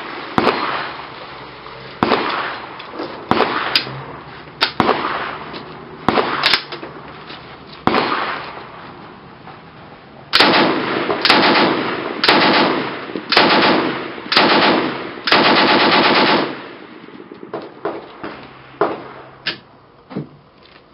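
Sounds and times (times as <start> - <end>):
machine gun firing: 2.0 - 2.6, 3.3 - 3.9, 6.1 - 6.7, 10.4 - 16.8.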